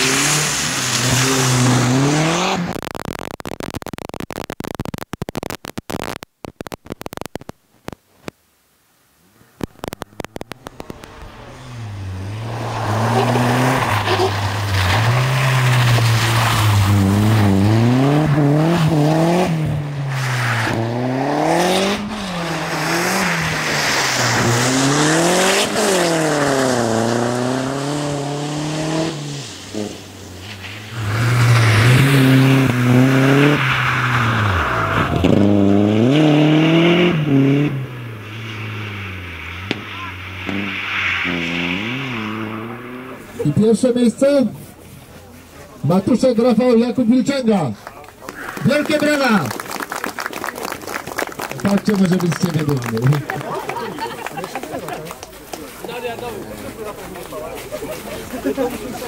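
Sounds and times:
rally car engine revving: 0:00.0 - 0:02.9, 0:09.4 - 0:44.6.

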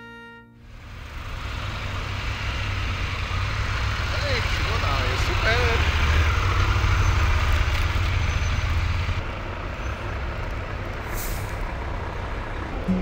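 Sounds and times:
engine rumbling: 0:00.6 - 0:13.0
short hiss of air: 0:11.1 - 0:11.6.

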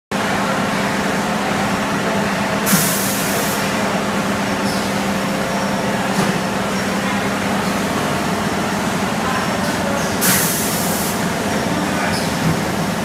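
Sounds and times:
machine hum: 0:00.2 - 0:13.0
compressed air hiss: 0:02.7 - 0:03.7, 0:10.2 - 0:11.3.

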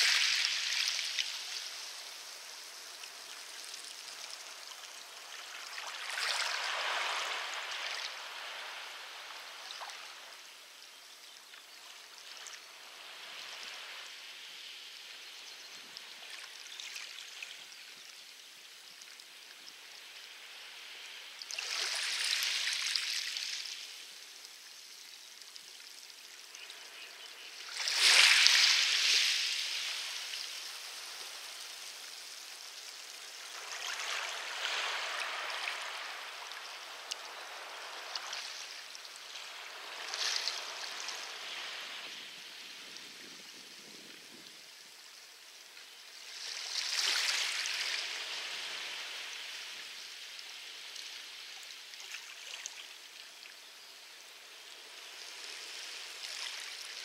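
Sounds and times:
waves washing onto pebbles: 0:00.0 - 0:10.5, 0:20.4 - 0:24.2, 0:27.6 - 0:45.0, 0:45.6 - 0:53.0, 0:54.3 - 0:57.0.

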